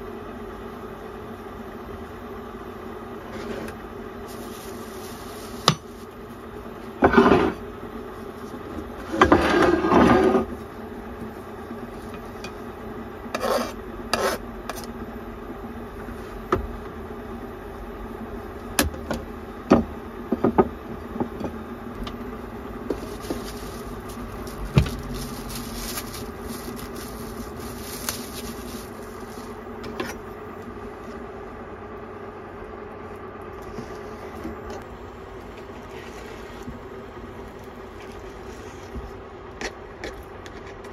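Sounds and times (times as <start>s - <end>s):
steady low hum: 0.0s - 40.9s
knife scraping cutting board: 13.3s - 14.9s.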